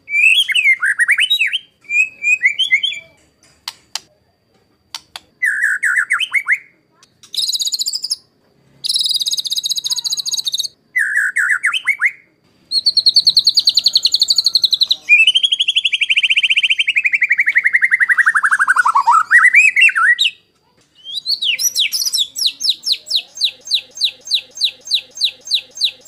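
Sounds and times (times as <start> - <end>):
bird singing rapid phrases: 0.0 - 4.1, 4.9 - 26.0
bird fast harsh trills: 8.8 - 12.1, 21.0 - 26.0.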